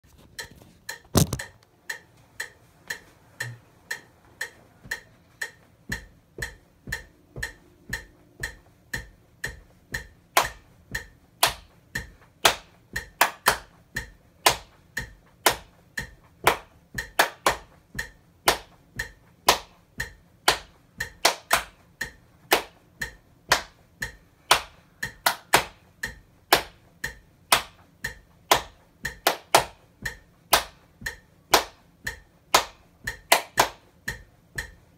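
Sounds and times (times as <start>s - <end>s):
metronome clicking: 0.1s - 34.9s
hand claps: 10.3s - 10.6s, 11.4s - 11.7s, 12.4s - 13.8s, 14.4s - 14.7s, 15.4s - 15.7s, 16.4s - 17.8s, 18.5s - 18.8s, 19.4s - 19.8s, 20.4s - 21.8s, 22.5s - 22.8s, 23.5s - 23.8s, 24.5s - 25.8s, 26.5s - 26.8s, 27.5s - 27.8s, 28.5s - 29.8s, 30.5s - 30.8s, 31.5s - 31.8s, 32.5s - 33.8s.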